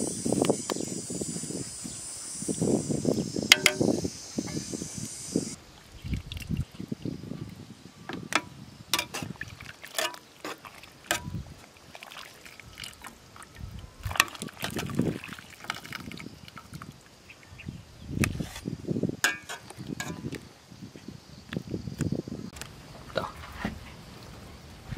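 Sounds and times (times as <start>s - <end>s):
liquid dripping and splashing: 9.3s - 16.9s
metal tongs clinking on pot: 10.0s - 10.2s, 19.2s - 20.2s.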